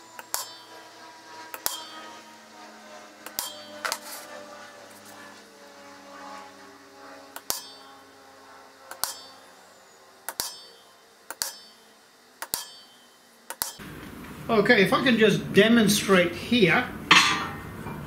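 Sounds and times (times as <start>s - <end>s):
hammer tapping metal punch: 0.2s - 0.7s, 1.6s - 2.0s, 8.9s - 9.4s, 10.3s - 11.8s, 12.4s - 13.8s, 17.1s - 17.7s.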